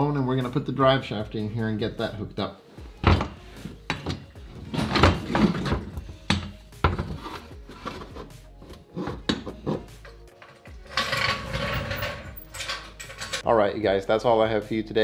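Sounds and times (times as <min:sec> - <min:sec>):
metal scraping and rubbing: 0:02.9 - 0:13.5
metal clunks and knocks: 0:03.0 - 0:13.4.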